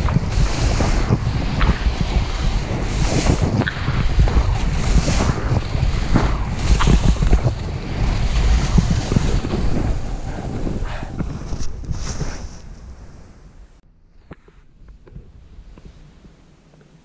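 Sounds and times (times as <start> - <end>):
knocks and scrapes: 0.0 - 13.1
snowboard sliding over snow: 0.0 - 13.8
wind buffeting microphone: 0.0 - 13.8.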